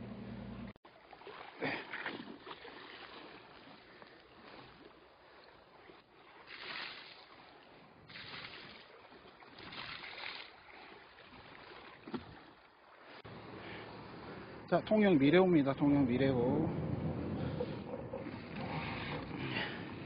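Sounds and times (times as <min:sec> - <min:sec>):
sea water washing and sloshing: 0:00.9 - 0:13.3, 0:16.8 - 0:20.0.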